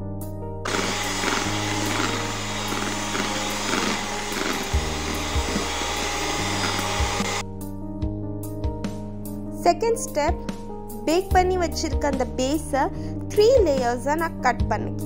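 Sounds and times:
background music: 0:00.0 - 0:15.0
electric hand mixer running: 0:00.6 - 0:07.4.

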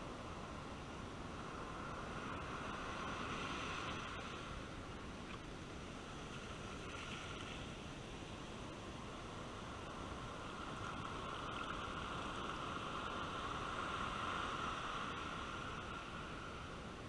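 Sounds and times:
ocean surf washing on sand: 0:00.0 - 0:17.0.

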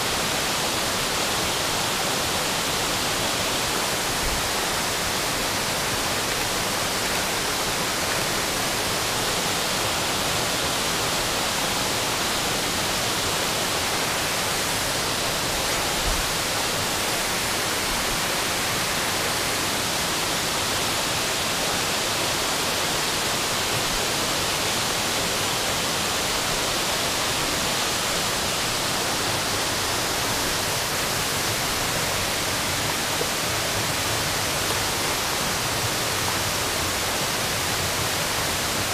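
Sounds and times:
creek water rushing over rock: 0:00.0 - 0:38.9.

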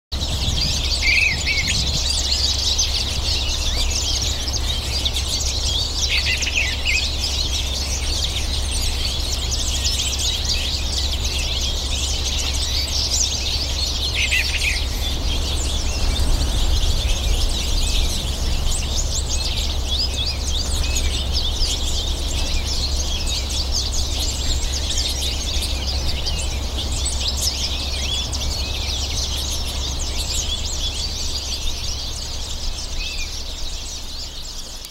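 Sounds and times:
birds twittering and chirping: 0:00.1 - 0:34.9
low rumble: 0:07.9 - 0:26.9.

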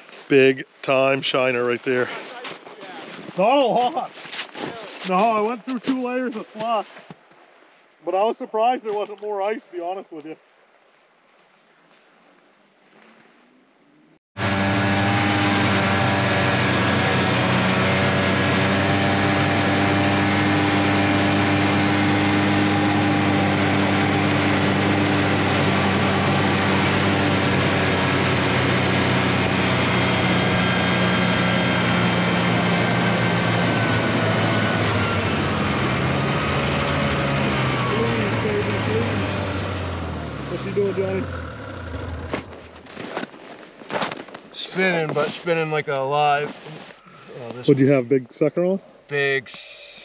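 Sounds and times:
snowmobile engine running: 0:04.8 - 0:06.8, 0:14.4 - 0:43.2, 0:44.6 - 0:45.6.

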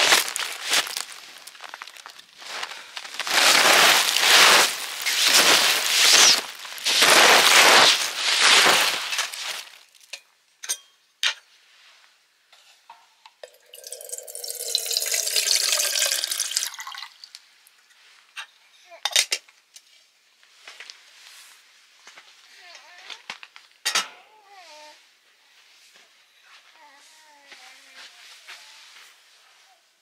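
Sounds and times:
loud hiss: 0:03.4 - 0:09.6
water pouring into container: 0:13.5 - 0:17.3.

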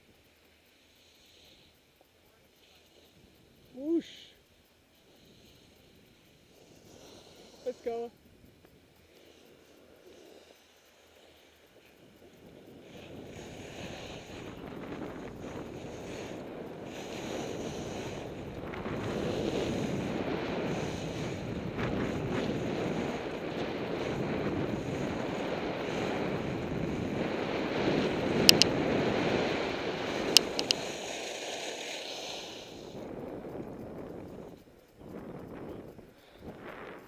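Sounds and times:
skis running over packed snow: 0:04.9 - 0:37.0
wind rushing over microphone: 0:12.0 - 0:30.8, 0:32.5 - 0:37.0
sharp clicks: 0:28.4 - 0:28.9, 0:30.0 - 0:37.0.

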